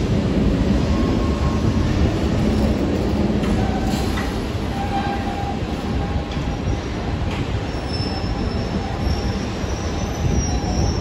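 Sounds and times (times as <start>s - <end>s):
wheels rumbling on rail: 0.0s - 11.0s
high wheel squeal: 7.6s - 11.0s.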